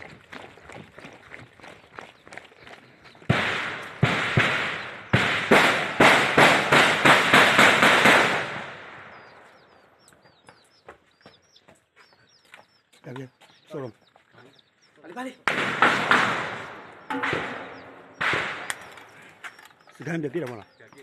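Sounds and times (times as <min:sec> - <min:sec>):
birds chirping: 0:00.0 - 0:21.0
gunshots echoing: 0:03.2 - 0:09.7, 0:15.4 - 0:19.6.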